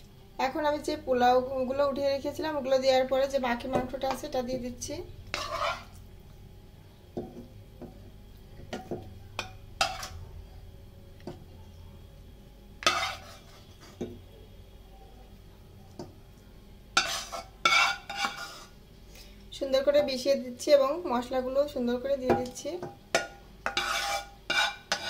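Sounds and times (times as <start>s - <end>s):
faint low hum: 0.0s - 25.0s
spoon scraping a steel pot: 5.3s - 6.0s, 8.8s - 10.2s, 12.8s - 14.1s, 17.0s - 18.8s, 23.2s - 25.0s.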